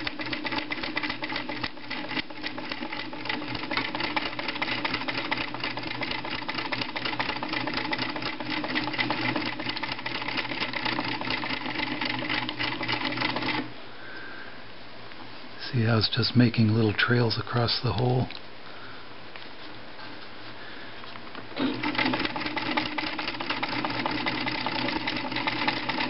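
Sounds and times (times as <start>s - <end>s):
sewing machine running: 0.0s - 13.7s, 21.6s - 26.0s.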